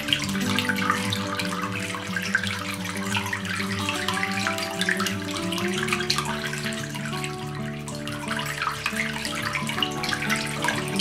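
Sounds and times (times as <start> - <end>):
background music: 0.0 - 11.0
fountain water trickling: 0.0 - 11.0.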